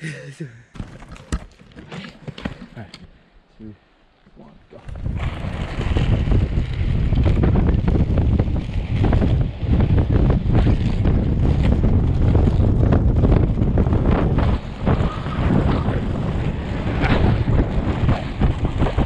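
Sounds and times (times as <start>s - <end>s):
skate wheels rolling on asphalt: 4.8s - 19.0s
wind buffeting microphone: 4.8s - 19.0s.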